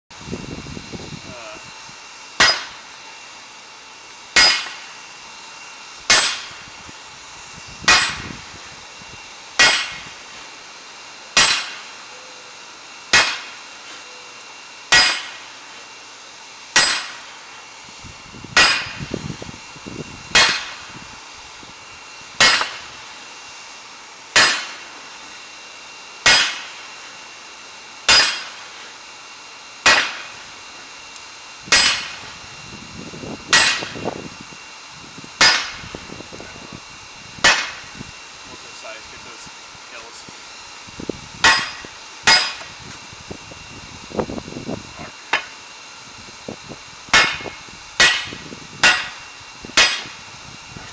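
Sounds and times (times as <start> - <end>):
hammer clanging on anvil: 2.4 - 2.7, 4.4 - 4.8, 6.1 - 6.5, 7.9 - 8.2, 9.6 - 10.0, 11.4 - 11.9, 14.9 - 15.4, 16.8 - 17.3, 22.4 - 22.8, 24.4 - 25.0, 26.3 - 26.7, 28.1 - 28.6, 33.5 - 34.0, 41.4 - 42.7, 47.2 - 49.2, 49.8 - 50.1.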